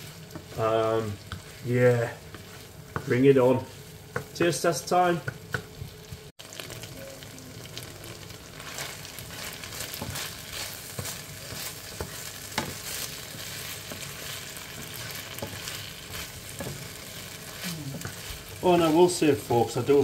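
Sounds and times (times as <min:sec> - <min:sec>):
food sizzling in a frying pan: 0:00.0 - 0:20.0
spatula scraping and tapping pan: 0:01.2 - 0:04.6, 0:08.8 - 0:17.1.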